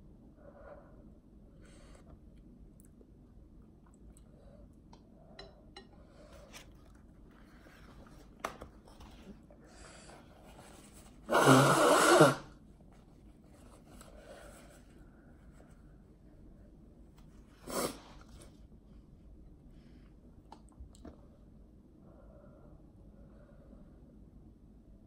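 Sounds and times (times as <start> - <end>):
person blowing nose: 11.2 - 12.5, 17.6 - 18.2.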